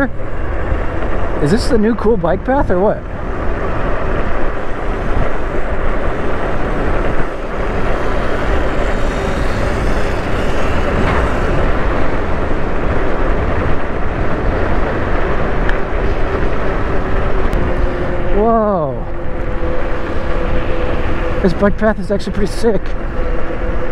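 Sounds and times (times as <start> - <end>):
road noise: 0.0 - 23.9
wind buffeting microphone: 0.0 - 23.9.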